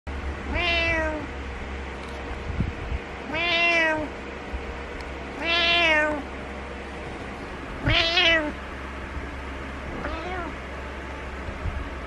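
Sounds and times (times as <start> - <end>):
cat meowing: 0.5 - 1.3, 3.2 - 4.1, 5.4 - 6.2, 7.8 - 8.6, 10.0 - 10.6.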